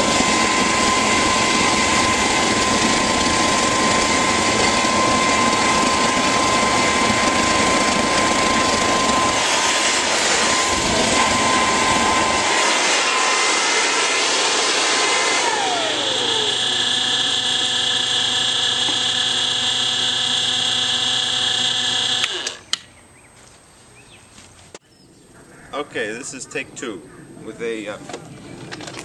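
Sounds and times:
leaf blower roaring: 0:00.0 - 0:22.7
turbo whine: 0:00.0 - 0:22.8.

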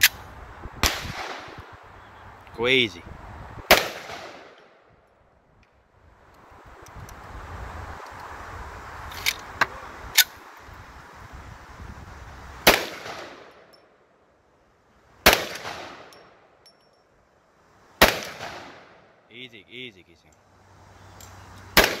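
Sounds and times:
pistol shots echoing: 0:03.7 - 0:04.6, 0:12.7 - 0:13.6, 0:15.2 - 0:16.2, 0:18.0 - 0:19.0, 0:21.8 - 0:22.0.

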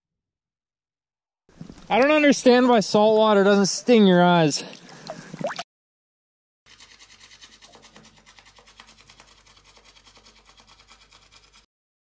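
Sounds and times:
toothbrush scrubbing teeth: 0:06.7 - 0:11.7.

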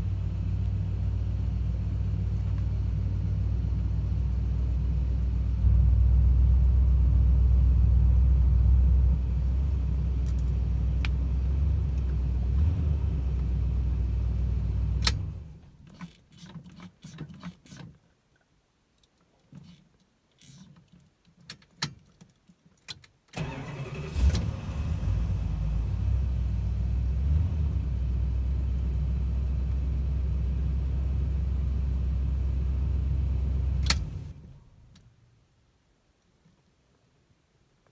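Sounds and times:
car engine starting and running: 0:00.0 - 0:15.8, 0:23.4 - 0:35.0.

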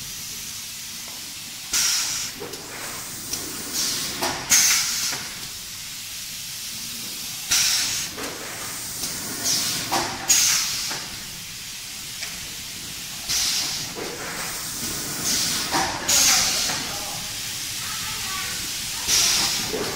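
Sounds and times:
air cylinders venting hisses: 0:00.0 - 0:19.9
steady machine hiss: 0:00.0 - 0:19.9.

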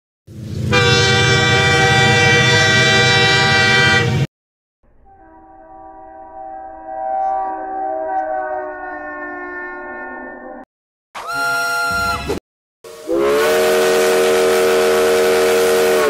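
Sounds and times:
train horn blasts: 0:00.7 - 0:04.3, 0:05.1 - 0:10.6, 0:12.9 - 0:16.0.

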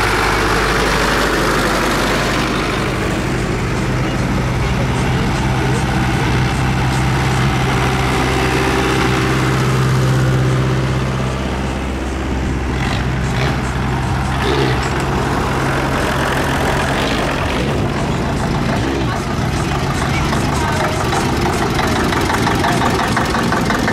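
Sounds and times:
tractor engine running: 0:00.0 - 0:23.9.

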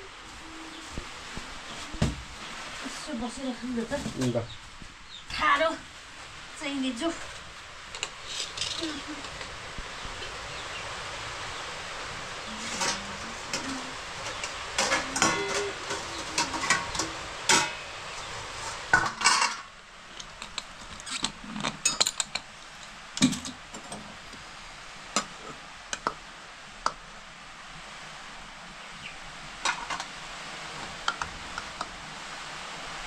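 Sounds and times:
metal dishes clinking and clattering: 0:12.5 - 0:18.0, 0:18.6 - 0:22.4, 0:23.2 - 0:24.0.

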